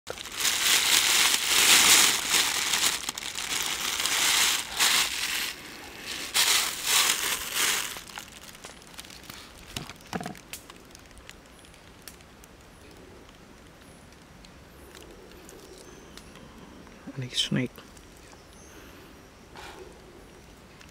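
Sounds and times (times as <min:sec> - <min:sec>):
snakes rustling in wicker basket: 0:00.1 - 0:12.1.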